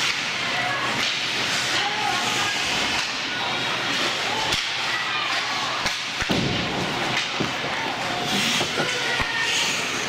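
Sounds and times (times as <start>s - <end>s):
crowd chatter: 0.0s - 10.0s
skates hissing on ice: 8.0s - 10.0s.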